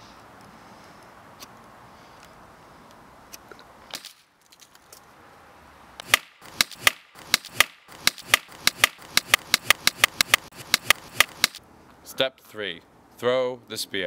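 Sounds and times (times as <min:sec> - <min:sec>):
stick whacked against tree trunk: 0:06.0 - 0:11.6.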